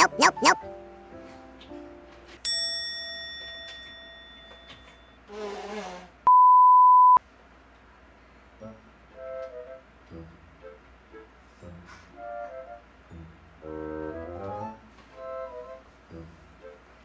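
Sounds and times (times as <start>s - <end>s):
bell-like ding: 2.5s - 5.2s.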